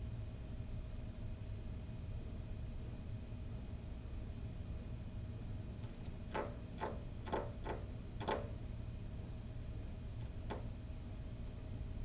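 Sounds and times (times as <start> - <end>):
bird pecking at window glass: 5.8 - 8.6, 10.2 - 10.7.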